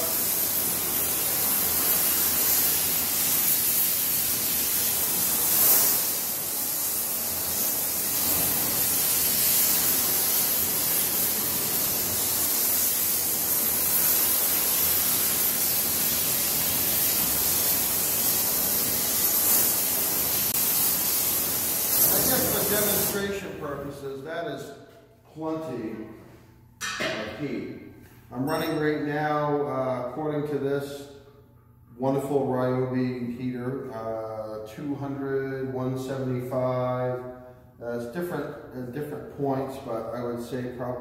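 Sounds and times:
gas torch flame hissing: 0:00.0 - 0:24.7.

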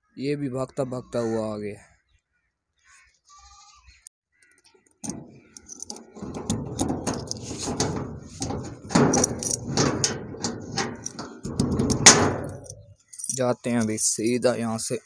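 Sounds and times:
key turning in padlock: 0:05.0 - 0:14.4
metallic clicks and rattles: 0:05.0 - 0:14.4.

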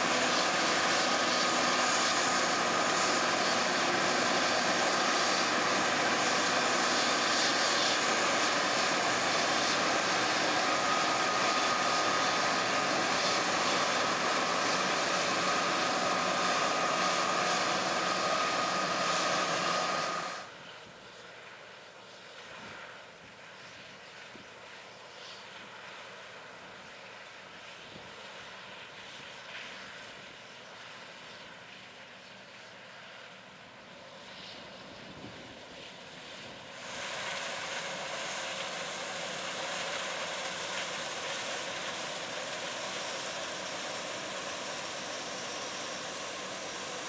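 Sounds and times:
mechanical whine: 0:00.0 - 0:20.8, 0:34.2 - 0:47.0
combine harvester running: 0:00.0 - 0:47.0.

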